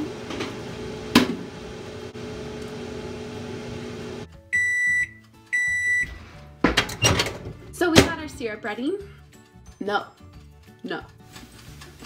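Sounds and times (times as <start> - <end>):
microwave oven humming: 0.0 - 4.7
long microwave beeps: 4.5 - 6.1.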